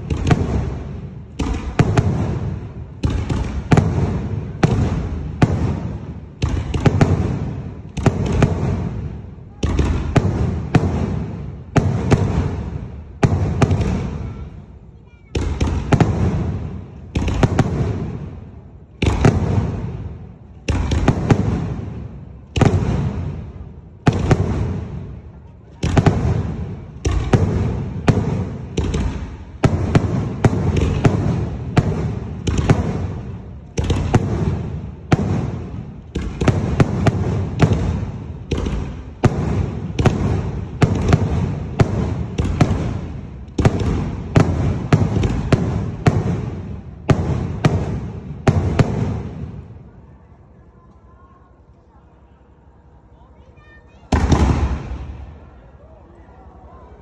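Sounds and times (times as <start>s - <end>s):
firework shells banging and echoing: 0.0s - 49.8s, 54.1s - 55.4s.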